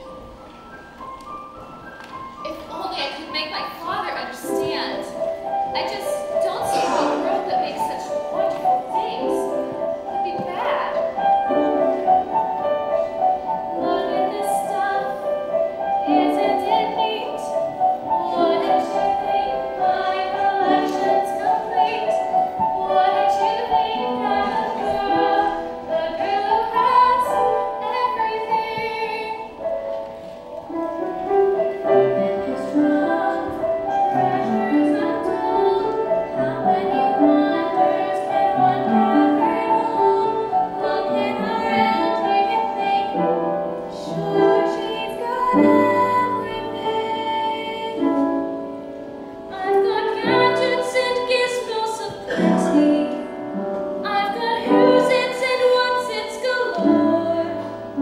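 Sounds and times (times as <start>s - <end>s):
instrumental accompaniment: 0.0s - 58.0s
girl singing: 6.6s - 11.0s, 16.0s - 29.6s, 31.9s - 48.3s, 49.5s - 53.4s, 54.0s - 57.8s.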